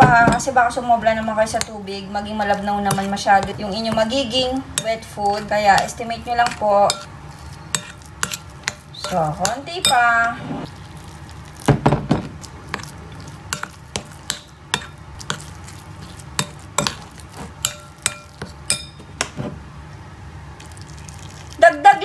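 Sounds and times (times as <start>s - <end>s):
metal spoon clinking in bowl: 4.8s - 7.1s, 17.6s - 19.0s.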